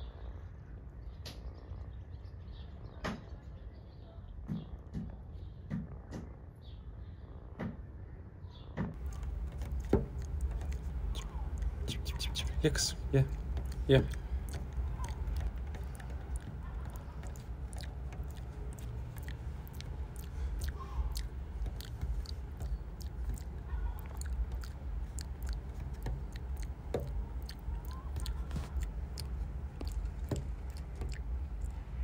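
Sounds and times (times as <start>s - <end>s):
cats chewing wet food: 9.0s - 32.0s
low background rumble: 9.0s - 32.0s.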